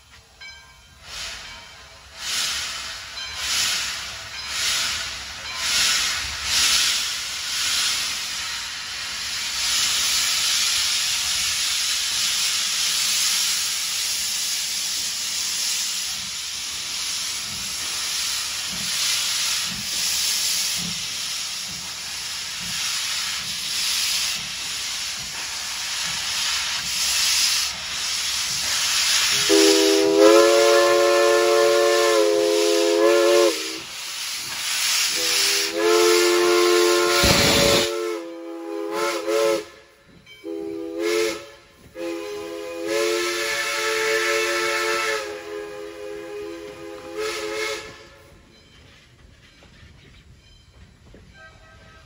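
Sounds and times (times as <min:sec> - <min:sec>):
steam locomotive hissing: 0:00.0 - 0:52.0
steam whistle blast: 0:29.2 - 0:33.9, 0:35.1 - 0:48.3.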